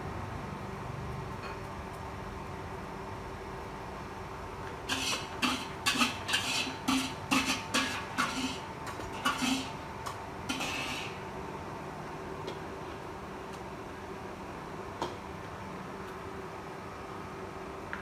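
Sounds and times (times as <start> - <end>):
steady hum: 0.0 - 18.0
metal spatula scraping a wok: 4.9 - 9.8, 10.4 - 11.2.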